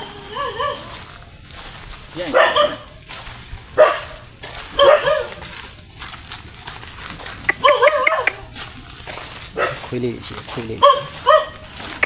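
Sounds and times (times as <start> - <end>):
dog whining and yelping: 7.5 - 8.4.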